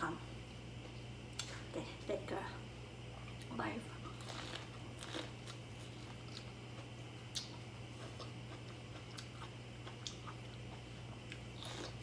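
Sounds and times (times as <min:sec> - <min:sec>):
person chewing corn: 0:03.3 - 0:12.0
sharp clicks from bites: 0:07.3 - 0:07.6.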